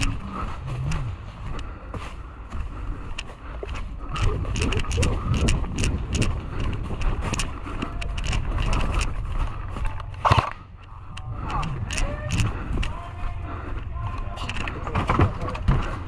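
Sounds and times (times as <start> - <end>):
wind rumble on microphone: 0.0 - 1.7, 2.5 - 16.0
twigs snapping: 3.1 - 13.0.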